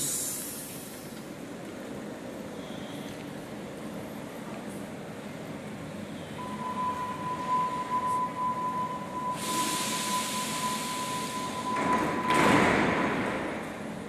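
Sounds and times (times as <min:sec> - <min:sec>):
loud hiss: 0:00.0 - 0:01.1, 0:09.3 - 0:11.7
train low rumble: 0:00.0 - 0:12.3
steady high tone: 0:06.4 - 0:12.3.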